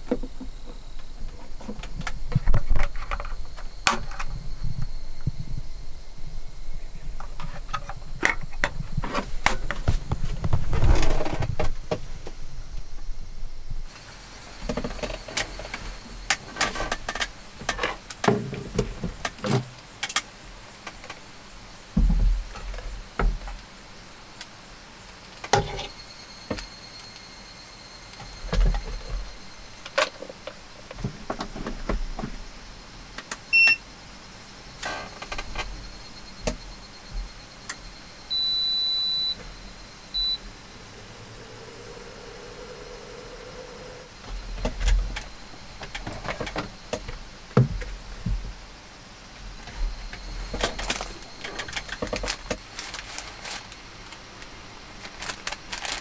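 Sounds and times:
cooktop touch control beeps: 33.5 - 33.8, 37.6 - 39.4, 40.1 - 40.4
low hum: 35.3 - 47.4
power cords clicking and rattling: 44.3 - 47.9, 49.6 - 54.3.

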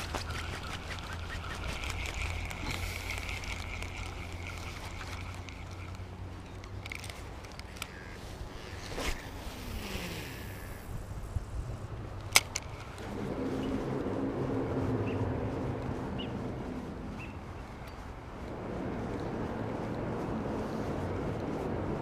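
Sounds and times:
fishing reel whirring: 0.0 - 10.9.

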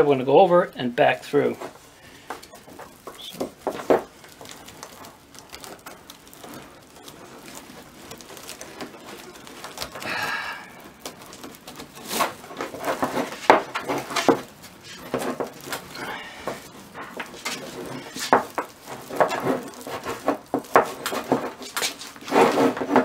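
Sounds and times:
rope strands rustling and creaking: 0.0 - 23.0
sharp clicks and knocks: 10.9 - 23.0.

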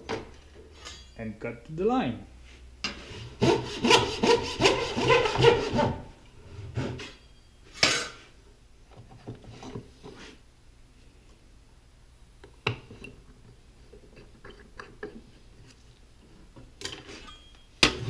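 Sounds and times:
backsaw cutting wood: 3.4 - 6.0.

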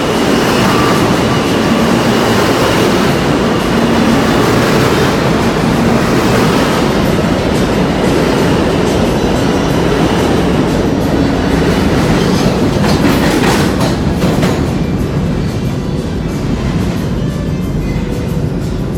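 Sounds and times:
subway train rumbling past: 0.0 - 18.9
wheels clacking over rail joints: 0.0 - 18.9.

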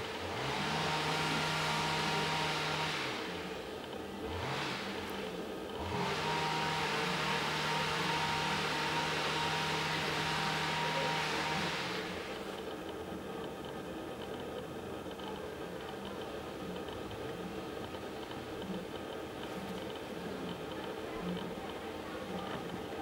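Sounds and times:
engine revving: 0.2 - 3.6, 4.2 - 5.1, 5.8 - 12.4.

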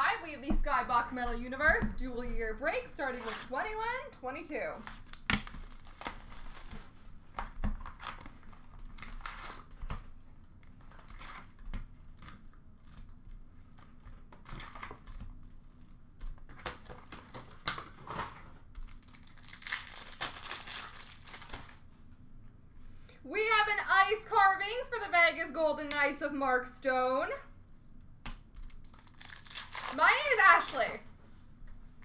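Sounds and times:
card pack wrappers tearing and crinkling: 4.7 - 10.0, 16.4 - 21.8, 28.6 - 31.0.

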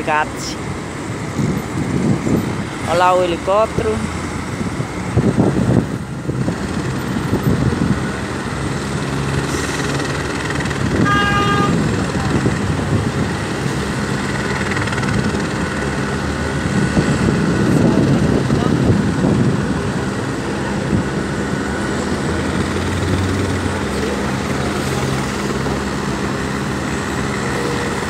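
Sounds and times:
heavy road traffic: 0.0 - 28.0
vehicle horn blast: 11.0 - 11.9.

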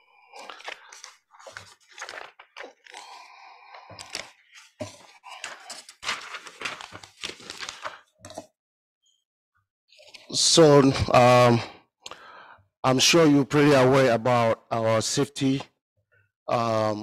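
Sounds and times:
papers rustling and crinkling: 0.4 - 3.2, 3.8 - 8.5
sharp paper cracks: 0.5 - 3.0, 5.3 - 8.0.

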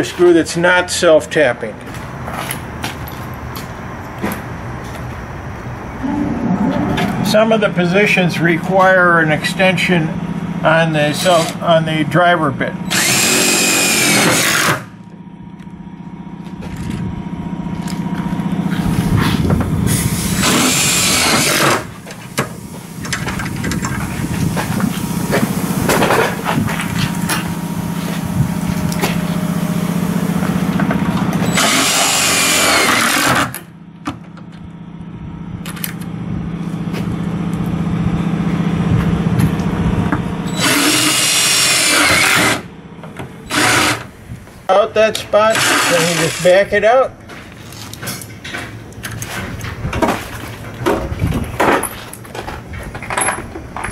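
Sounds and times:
drill driving screws into metal: 12.9 - 14.9, 20.4 - 21.9, 31.4 - 33.6, 40.5 - 42.6, 43.5 - 44.1, 45.5 - 46.6
loud harsh bursts: 12.9 - 15.0, 19.9 - 22.0, 31.4 - 33.5, 40.5 - 42.7, 43.4 - 44.2, 45.4 - 46.7.

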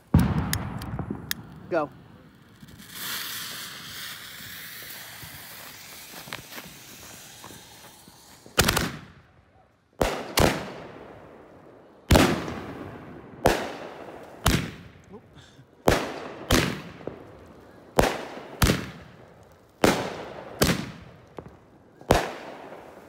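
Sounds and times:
firework bangs: 0.0 - 9.3, 10.0 - 23.0
fuse hissing: 2.8 - 8.6.

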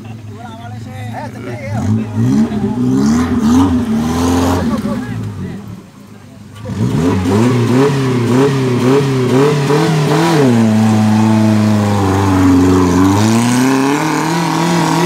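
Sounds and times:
engine revving in mud: 1.4 - 15.0.

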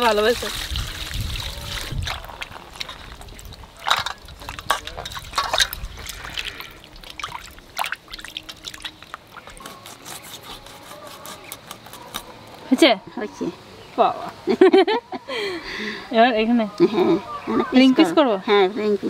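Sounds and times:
water splashing in steel bowl: 0.0 - 9.6.

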